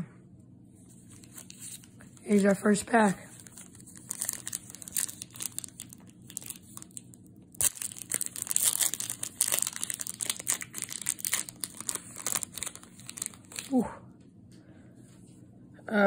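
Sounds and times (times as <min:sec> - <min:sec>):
foil wrapper tearing and crinkling: 0:01.1 - 0:13.8.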